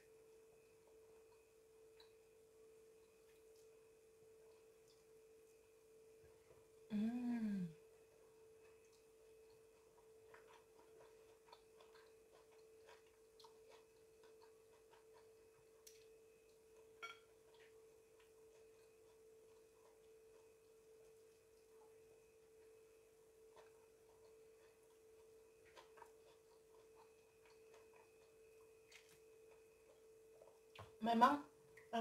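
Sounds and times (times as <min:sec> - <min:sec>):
faint steady hum: 0:00.0 - 0:32.0
faint clicks and mouth noises: 0:08.6 - 0:16.9.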